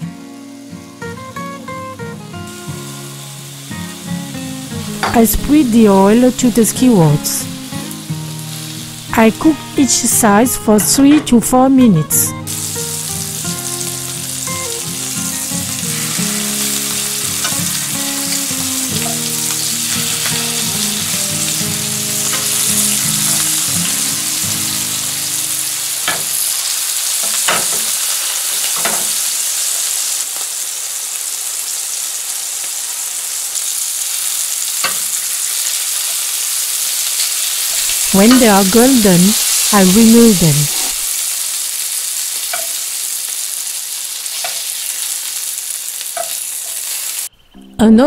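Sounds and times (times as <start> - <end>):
soft background music: 0.0 - 29.8, 36.8 - 40.8
meat sizzling in oil: 2.4 - 10.5, 12.4 - 47.3
tongs clicking: 42.5 - 42.8.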